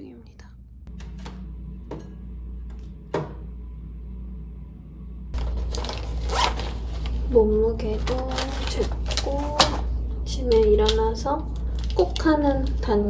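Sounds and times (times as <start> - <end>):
steady low hum: 0.0 - 13.0
pouch rustling: 5.4 - 7.3.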